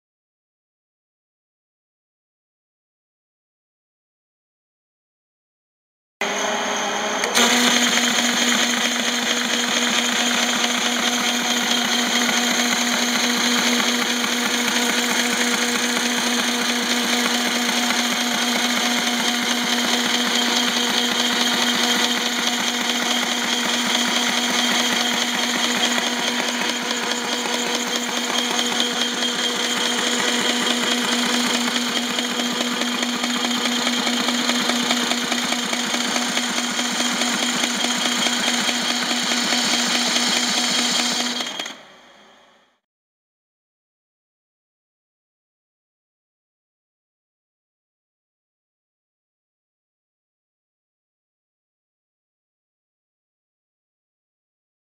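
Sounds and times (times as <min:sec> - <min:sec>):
paper folder machine whirring: 0:06.2 - 0:42.3
paper feeding clatter: 0:07.3 - 0:41.8.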